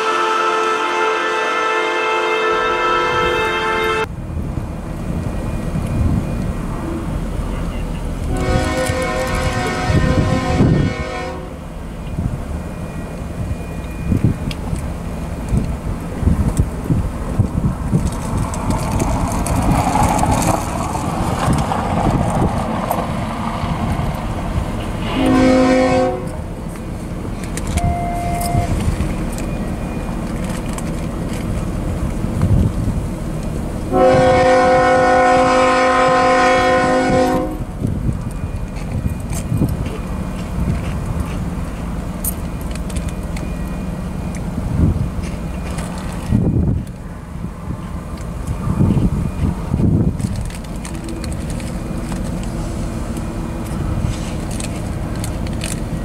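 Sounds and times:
train air horn blasts: 0.0 - 4.1, 8.2 - 11.6, 25.0 - 26.4, 27.7 - 28.8, 33.9 - 37.8
freight train rumble: 0.0 - 56.0.

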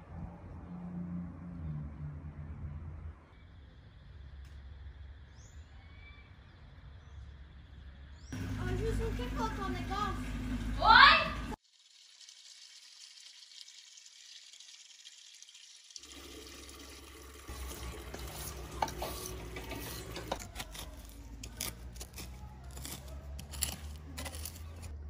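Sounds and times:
water running into watering can: 8.4 - 20.6
fork scraping through soil: 17.5 - 25.0.

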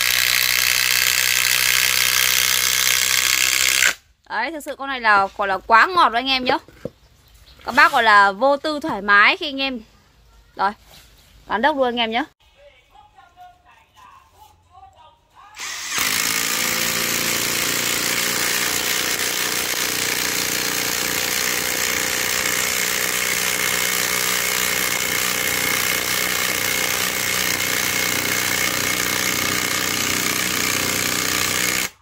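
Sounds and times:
impact driver hammering: 15.9 - 32.0.

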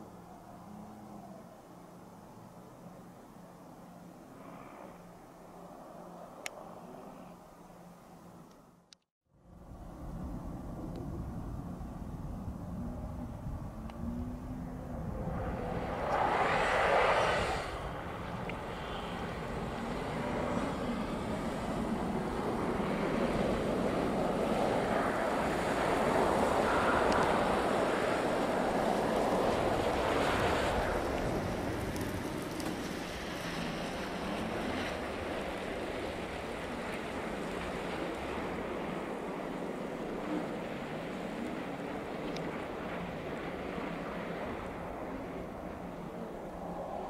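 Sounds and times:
wind buffeting microphone: 9.4 - 47.0
car driving past on snow: 12.7 - 39.6.

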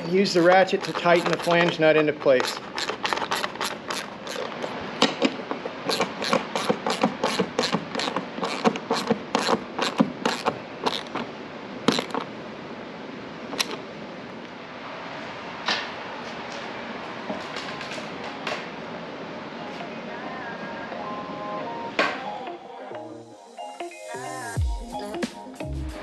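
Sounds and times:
hand ratchet clicking: 0.0 - 11.2.

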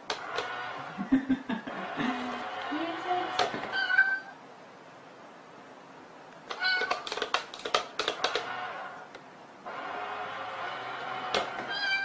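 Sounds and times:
toy meowing: 3.7 - 4.4, 6.5 - 7.1, 11.7 - 12.0
toy lid mechanism clicking: 6.4 - 8.5.

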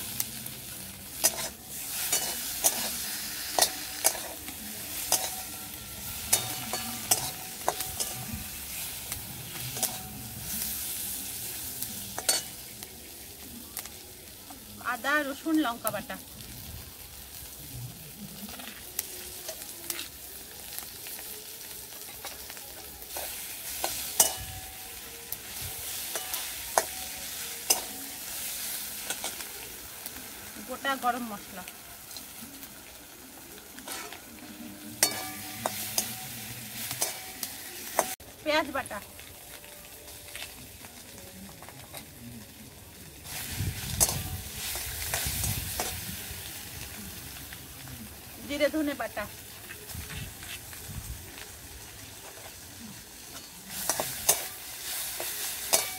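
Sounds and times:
paste sizzling in oil: 0.0 - 55.9
metal spatula scraping pan: 5.0 - 10.8, 33.8 - 38.2.

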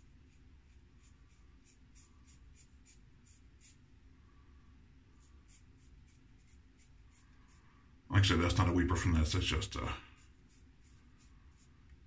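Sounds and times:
razor scraping stubble: 9.4 - 11.7.

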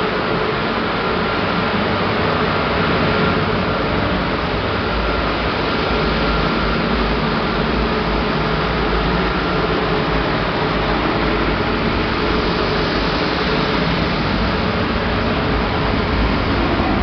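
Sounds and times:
gas burner roaring: 0.0 - 17.0
deep rumble: 9.8 - 17.0.

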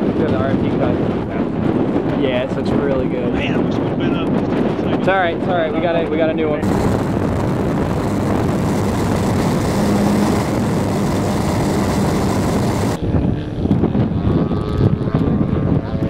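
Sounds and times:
gusty wind noise: 0.0 - 16.0
rush of air: 6.6 - 13.0
model airplane engine droning: 6.6 - 16.0.

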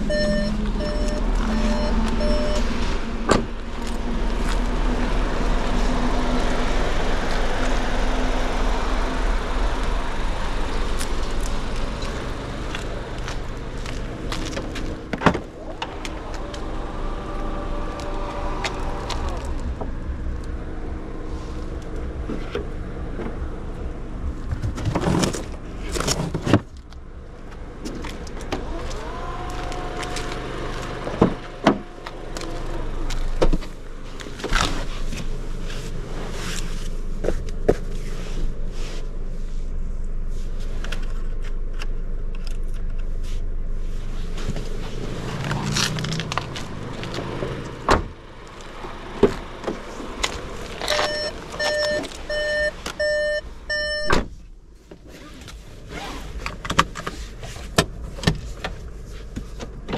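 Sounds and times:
electronic beeps: 0.0 - 2.7, 50.9 - 54.2
low engine hum: 0.0 - 59.9.

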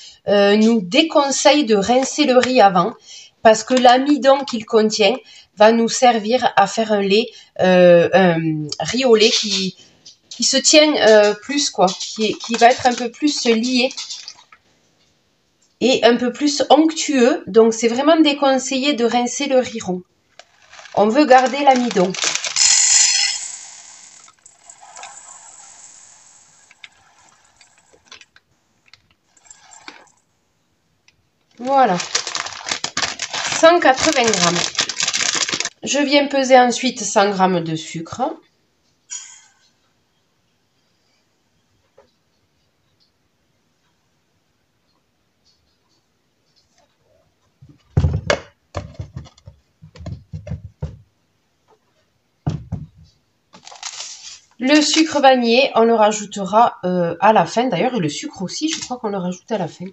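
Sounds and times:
grains ticking: 20.4 - 25.9
plastic container knocked on wood: 47.9 - 51.1, 52.5 - 53.1.

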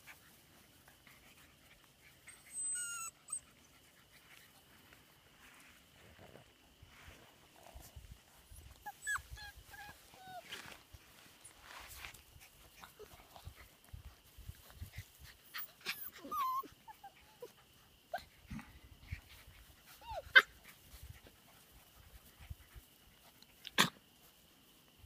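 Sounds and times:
puppies whimpering and squeaking: 2.1 - 3.7, 8.6 - 10.8, 15.5 - 17.6, 19.9 - 20.5.

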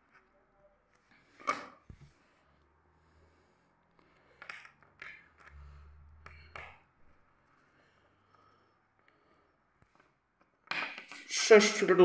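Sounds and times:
low rumble of handling: 5.4 - 7.8.

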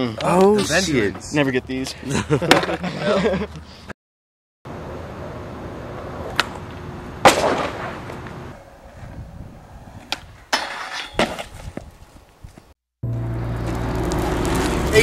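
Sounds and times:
skateboard wheels rolling: 4.8 - 15.0
skateboard landing hits: 7.2 - 8.3, 10.0 - 11.9.

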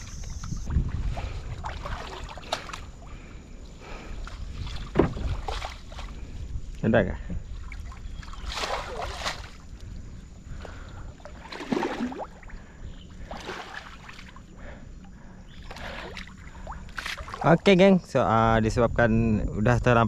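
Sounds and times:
feet sloshing through water: 0.0 - 6.4, 7.4 - 14.6, 15.5 - 17.6
rumble of moving water: 0.0 - 20.0
wind: 0.0 - 20.0.

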